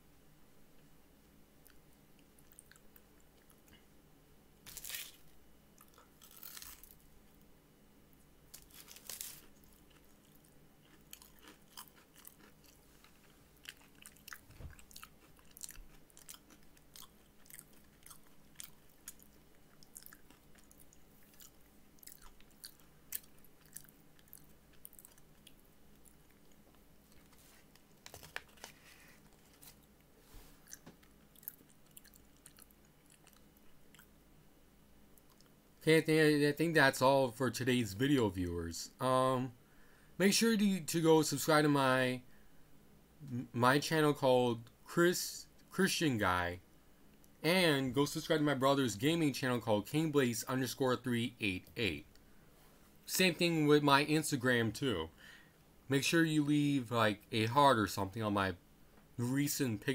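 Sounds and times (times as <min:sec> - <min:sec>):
person chewing apple pie: 0:01.6 - 0:03.8, 0:04.7 - 0:07.4, 0:08.5 - 0:34.2.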